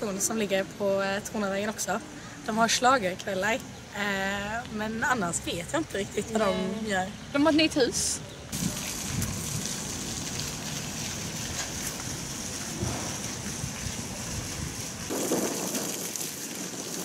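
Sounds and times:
wind on microphone: 12.7s - 17.0s.

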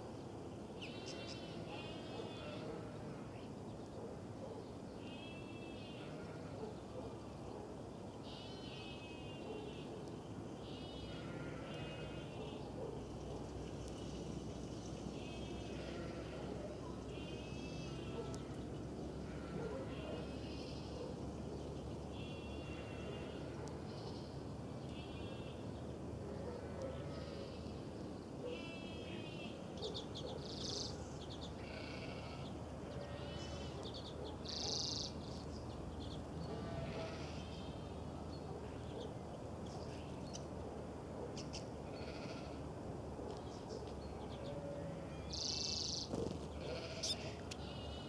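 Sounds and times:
finches twittering: 45.7s - 47.8s.

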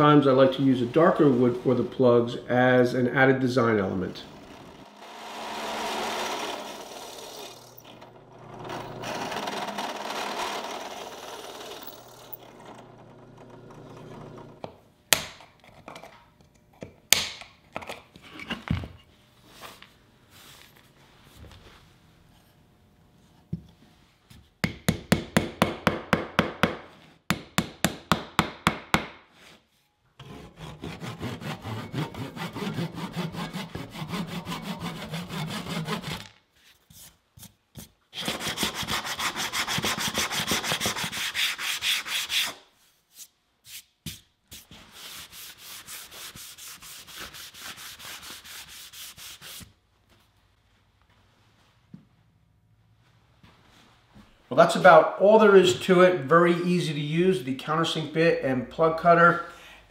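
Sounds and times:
drill press cutting wood: 4.3s - 14.6s
hand saw rasping on wood: 30.2s - 36.3s, 38.2s - 42.6s.

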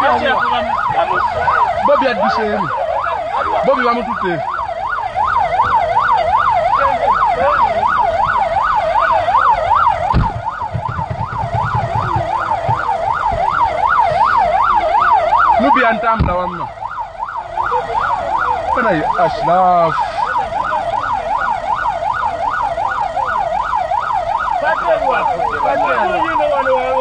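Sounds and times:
siren yelping: 0.0s - 27.0s
dull thump: 10.0s - 13.5s.

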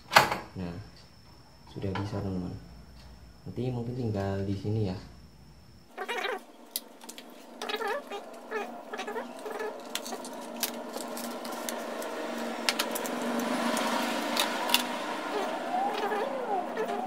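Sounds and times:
steady hum: 2.3s - 17.0s
wavering pitched sounds: 5.9s - 17.0s
packaging being handled: 6.7s - 14.9s.

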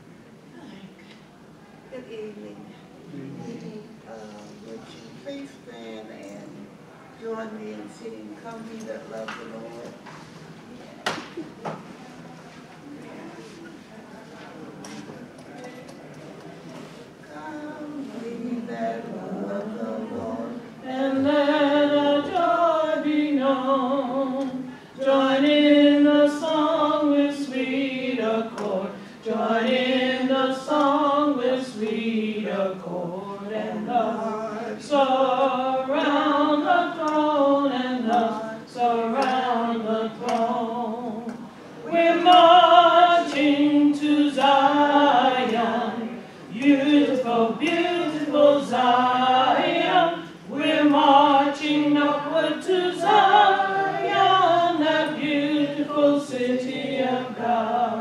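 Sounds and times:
group singing a hymn unaccompanied: 17.2s - 58.0s.

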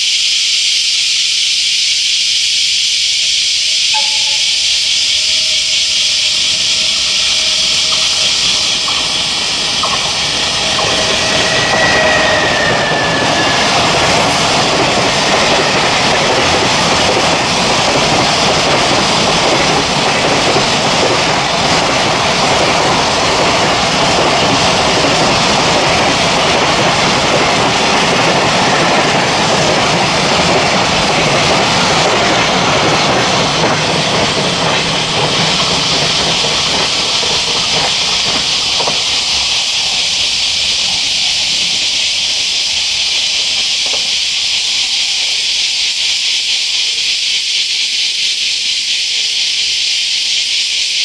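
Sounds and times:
steady high hiss: 0.0s - 51.0s
freight train rumbling past: 3.9s - 47.0s.

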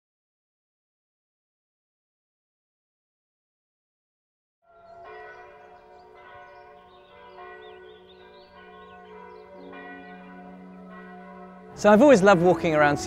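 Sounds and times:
church bells ringing: 4.7s - 13.0s.

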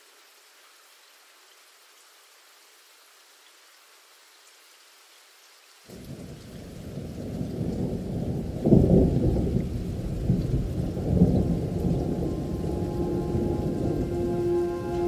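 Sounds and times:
rain: 0.0s - 15.0s
muffled rumble of thunder: 5.9s - 15.0s.

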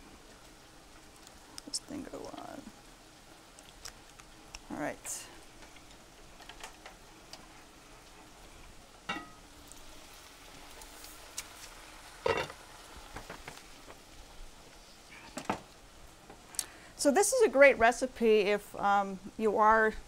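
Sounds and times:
vegetables sizzling in frying pans: 0.0s - 20.0s
pot lid clink: 9.1s - 9.4s, 12.3s - 12.6s.

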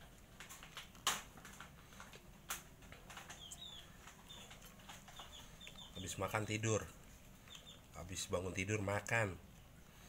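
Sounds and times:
faint bird chirps: 3.2s - 8.4s.

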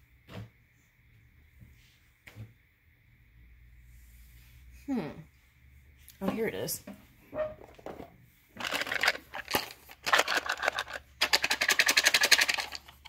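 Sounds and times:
cards riffling: 8.6s - 13.0s.

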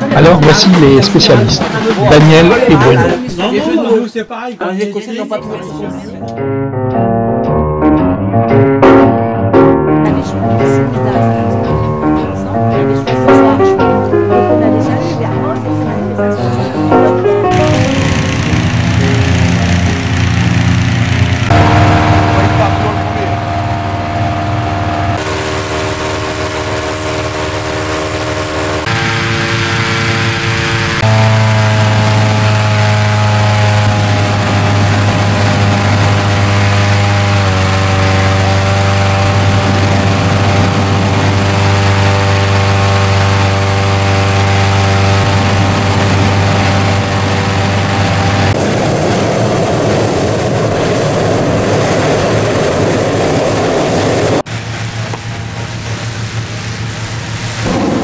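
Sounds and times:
petrol engine fan running: 0.0s - 3.9s, 10.1s - 58.0s
even rushing noise: 10.2s - 36.9s, 38.7s - 58.0s.

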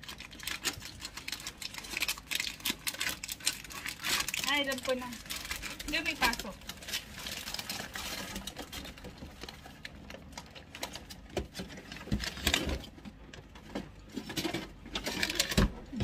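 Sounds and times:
candies and plastic parts clicking: 0.0s - 16.0s
plastic bag rustling: 0.0s - 16.0s.

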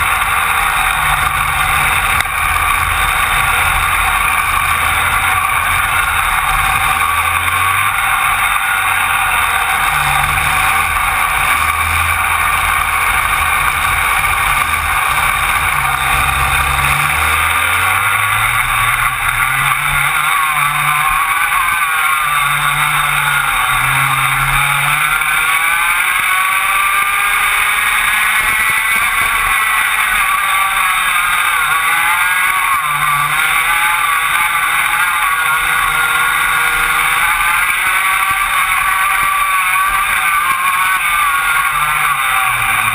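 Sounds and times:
kart engines racing: 0.0s - 42.9s.

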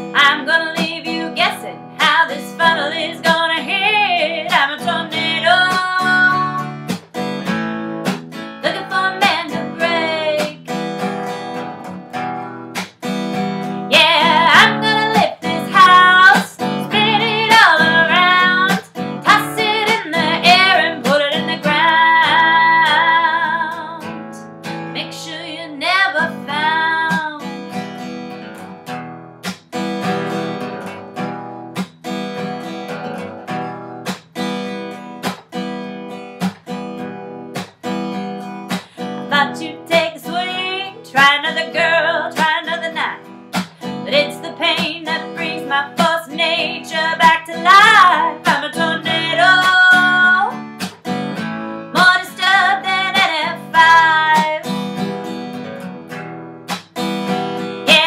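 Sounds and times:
woman singing: 0.0s - 6.8s, 8.6s - 10.8s, 13.9s - 27.6s, 38.7s - 50.7s, 51.9s - 55.1s
strummed acoustic guitar: 0.0s - 58.0s.

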